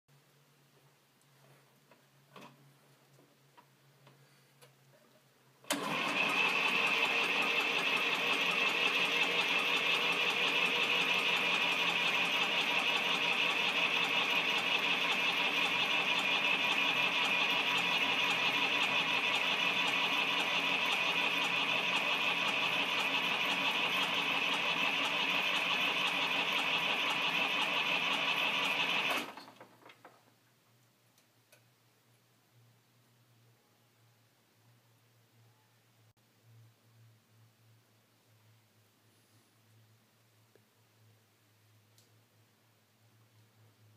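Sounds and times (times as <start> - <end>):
starter motor whining: 5.7 - 29.6.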